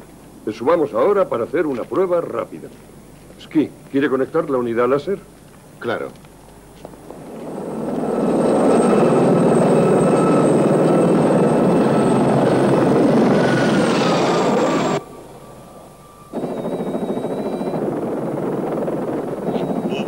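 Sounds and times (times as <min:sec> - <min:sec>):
helicopter turbine and rotor: 0:06.9 - 0:20.0.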